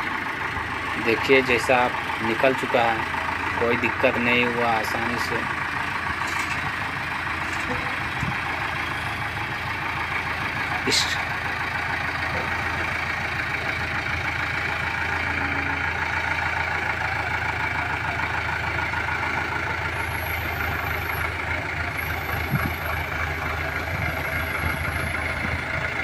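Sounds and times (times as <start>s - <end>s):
diesel crane engine running: 0.0s - 26.0s.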